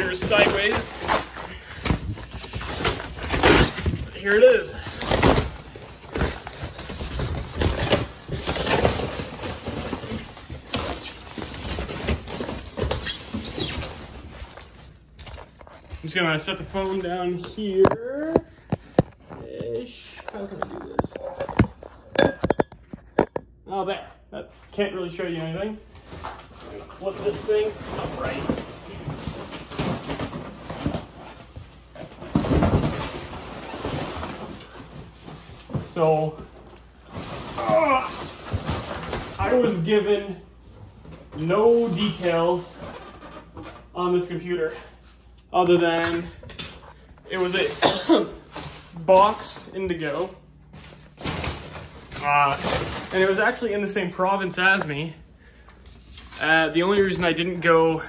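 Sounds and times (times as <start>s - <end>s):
cardboard packing rustling: 0.0s - 23.2s, 24.6s - 57.8s
short squeaks: 13.0s - 13.8s.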